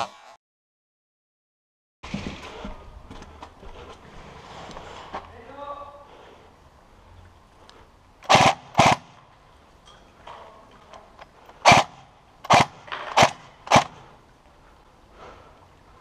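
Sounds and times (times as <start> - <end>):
airsoft rifle shots: 8.2 - 9.2, 11.6 - 14.0.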